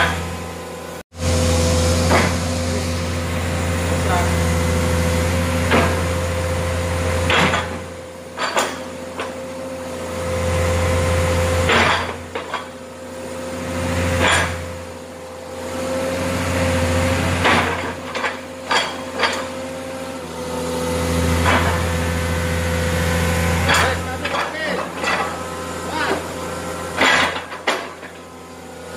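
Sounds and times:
excavator diesel engine running: 0:00.0 - 0:28.9
metal knocks and clanks: 0:23.6 - 0:25.4, 0:27.0 - 0:28.3.

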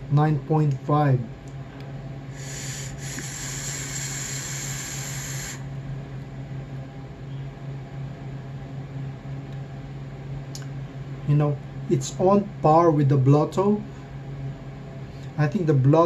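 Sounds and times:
low steady hum: 0:00.0 - 0:16.0
airflow and coil hiss: 0:02.3 - 0:05.7.

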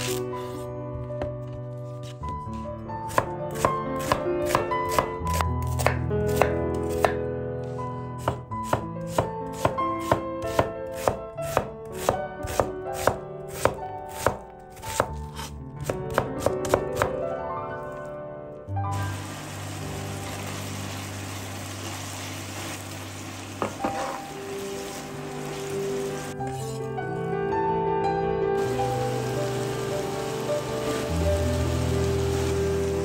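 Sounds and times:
soft background music: 0:00.0 - 0:21.9, 0:23.4 - 0:33.0
knife chopping on wooden board: 0:03.1 - 0:07.2, 0:08.2 - 0:17.1.

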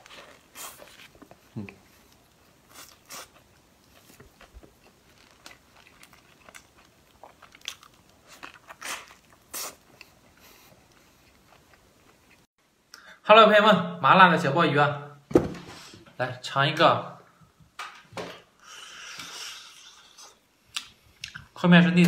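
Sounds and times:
person chewing crunchy food: 0:00.0 - 0:12.5.

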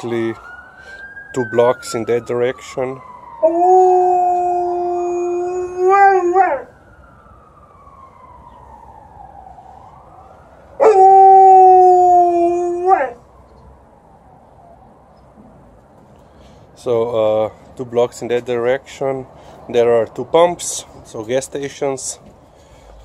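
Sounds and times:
distant ambulance siren: 0:00.0 - 0:23.0
dog howling: 0:03.4 - 0:06.7, 0:10.8 - 0:13.2.

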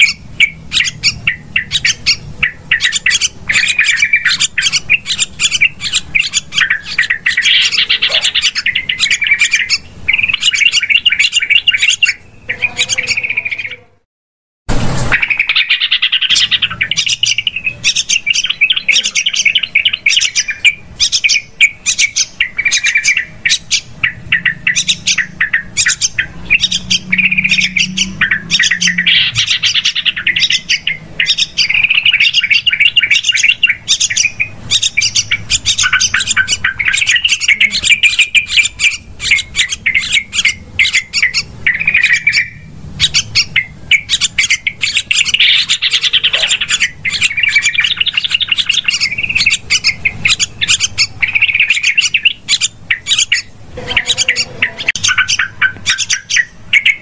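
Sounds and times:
bulbul rapid chattering calls: 0:00.0 - 0:13.9, 0:14.7 - 0:57.0.

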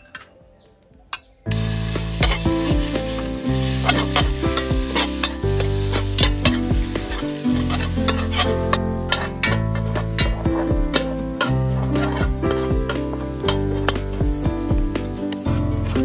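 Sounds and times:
low background music: 0:00.0 - 0:16.0
food sizzling in a pot: 0:01.5 - 0:16.0
metal spatula scraping a pot: 0:02.1 - 0:02.5, 0:03.6 - 0:14.0.

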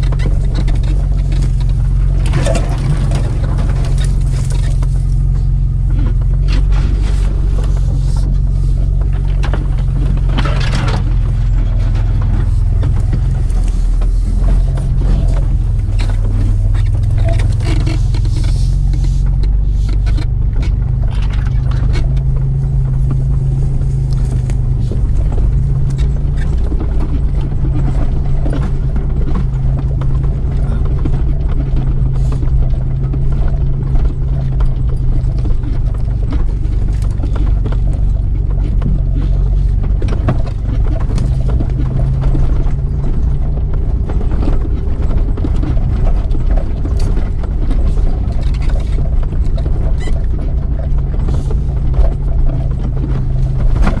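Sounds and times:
branches scraping along body: 0:00.0 - 0:10.3, 0:11.0 - 0:27.1
engine running: 0:00.0 - 0:54.0
suspension knocking: 0:00.0 - 0:54.0.

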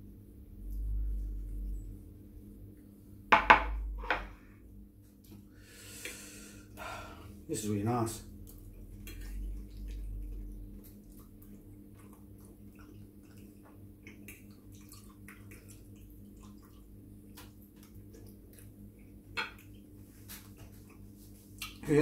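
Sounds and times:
low steady hum: 0:00.0 - 0:22.0
wet chewing mouth clicks: 0:08.4 - 0:21.8.

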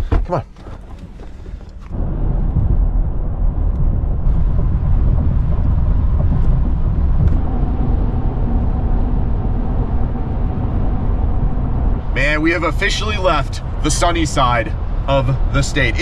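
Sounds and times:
tyre and engine rumble in cabin: 0:00.0 - 0:16.0.

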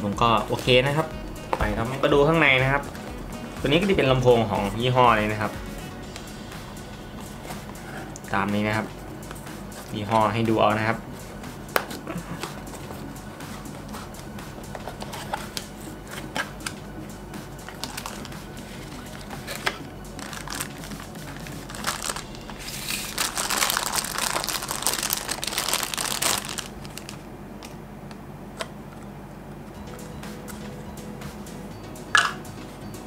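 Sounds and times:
plastic bag crinkling: 0:17.7 - 0:27.3.

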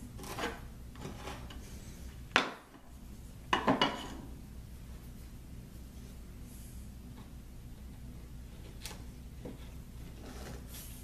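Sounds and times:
chisel scraping wood: 0:00.2 - 0:01.7.

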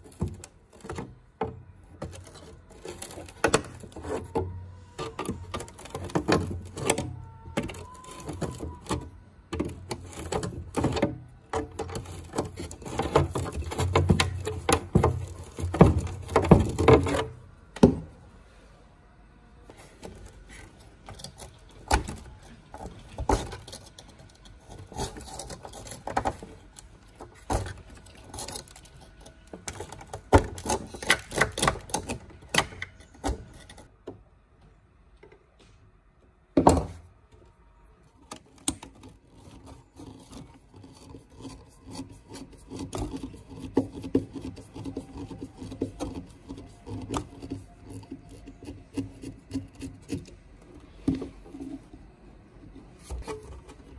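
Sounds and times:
rubbing and scraping: 0:00.0 - 0:18.2, 0:19.7 - 0:33.9, 0:38.3 - 0:53.9.

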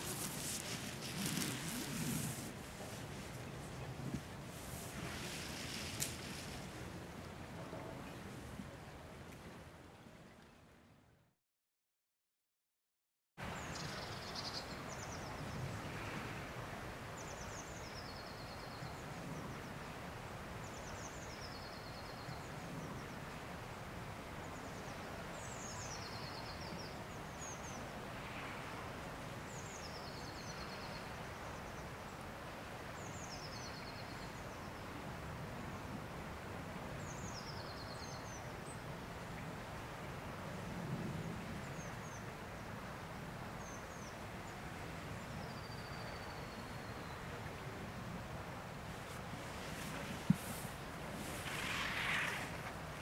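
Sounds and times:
outdoor hiss: 0:00.0 - 0:06.7, 0:48.6 - 0:53.0
songbird singing: 0:45.2 - 0:47.7.

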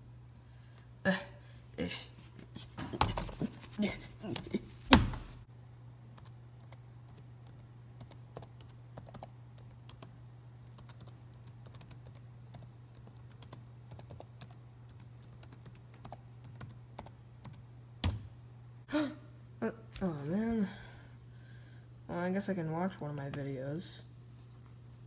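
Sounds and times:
laptop keyboard typing: 0:06.2 - 0:18.2.

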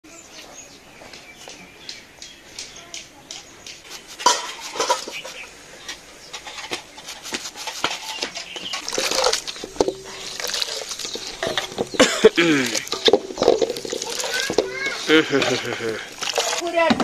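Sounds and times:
water splashing in basin: 0:07.5 - 0:16.9.

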